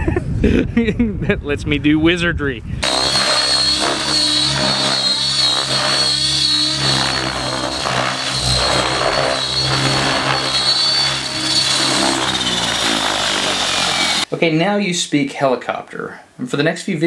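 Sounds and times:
model helicopter rotor whine: 2.8 - 14.3.

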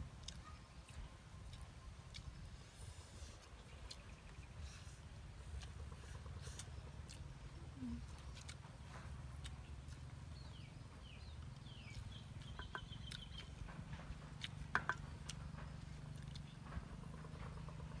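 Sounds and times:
low steady rumble: 0.0 - 18.0
birds chirping: 0.2 - 18.0.

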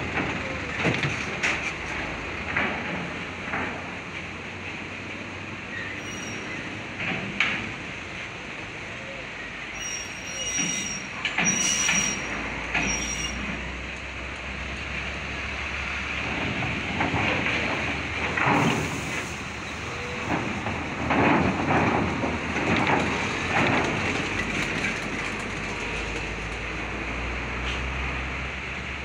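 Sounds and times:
diesel truck engines running: 0.0 - 29.0
high squeals: 5.7 - 6.8, 9.6 - 13.5
wheels clunking over metal ramp: 16.1 - 26.9.

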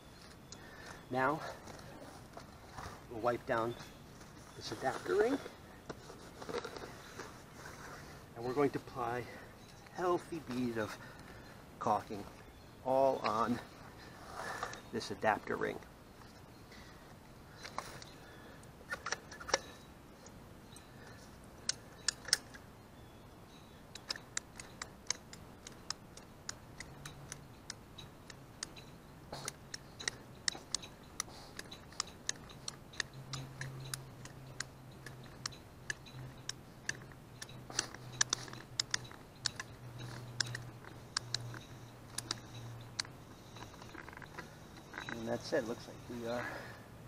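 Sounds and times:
caulking gun clicking: 29.5 - 43.1.

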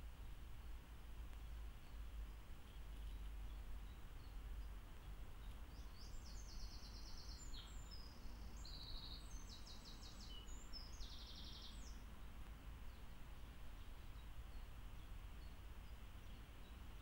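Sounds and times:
low rumble and hiss: 0.0 - 17.0
songbird trilling: 5.7 - 12.0.

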